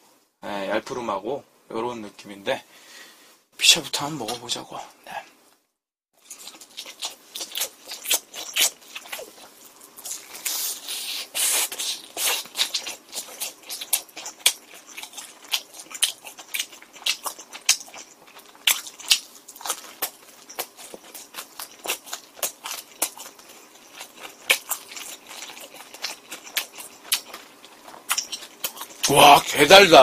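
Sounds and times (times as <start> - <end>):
person chewing with wet smacking: 6.2 - 29.4.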